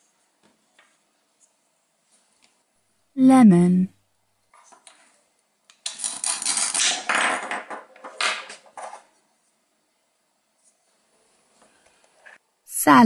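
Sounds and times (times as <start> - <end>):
velcro tearing: 5.9 - 7.0.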